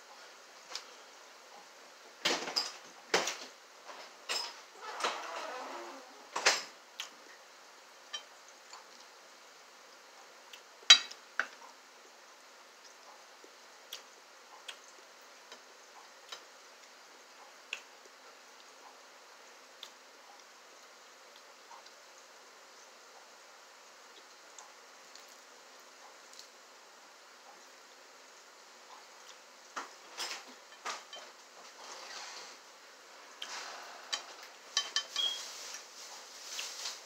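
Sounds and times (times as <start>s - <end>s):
cutlery clinking on glass: 10.9s - 11.2s, 34.2s - 35.4s
faint chewing clicks: 12.8s - 19.1s, 19.7s - 22.0s, 24.1s - 26.6s.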